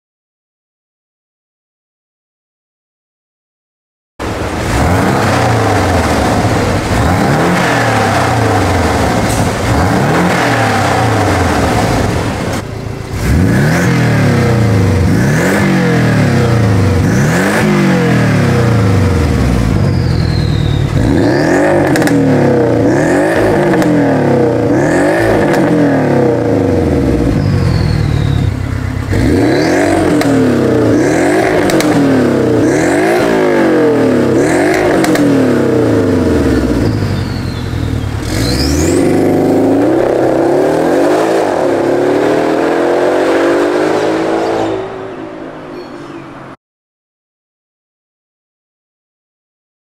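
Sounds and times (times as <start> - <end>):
car engine revving: 4.2 - 46.6.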